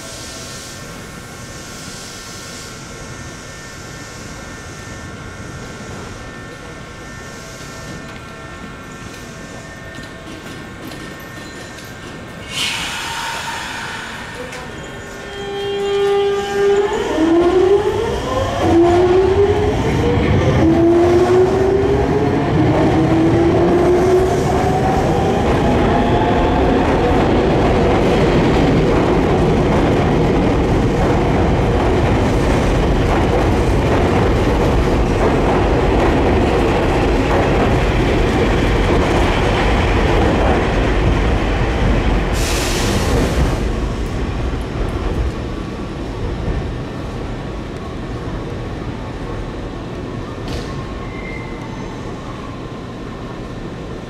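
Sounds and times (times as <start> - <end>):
train wheels clattering on rails: 9.1 - 16.2, 24.4 - 45.5
air hiss: 12.4 - 14.8, 42.3 - 43.4.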